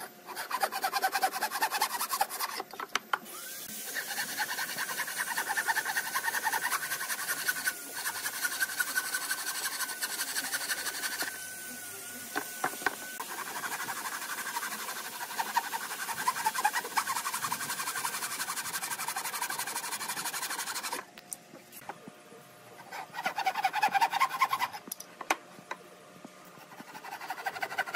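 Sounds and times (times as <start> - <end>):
hand saw rasping through wood: 0.0 - 2.6, 3.9 - 11.4, 13.2 - 21.0, 22.8 - 24.8, 26.6 - 27.9.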